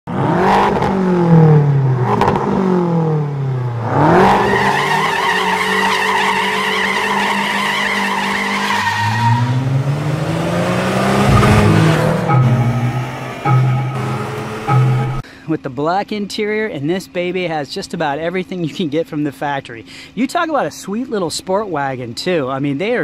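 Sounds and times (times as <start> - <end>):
car engine revving: 0.1 - 15.2.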